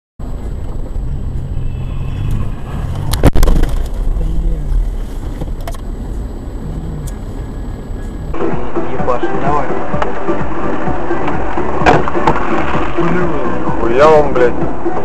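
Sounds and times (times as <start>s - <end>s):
car engine and road noise: 0.2s - 15.0s.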